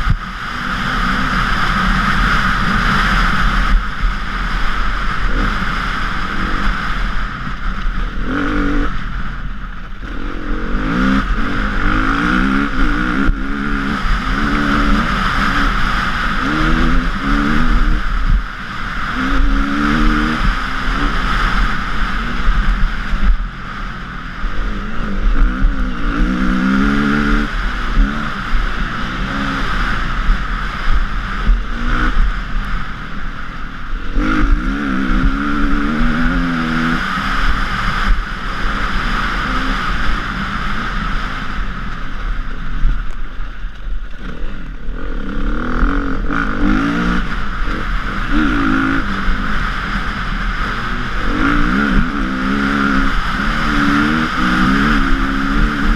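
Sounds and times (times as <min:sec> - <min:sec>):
motorcycle engine revving: 0:00.0 - 0:55.9
steady rushing noise: 0:00.0 - 0:55.9.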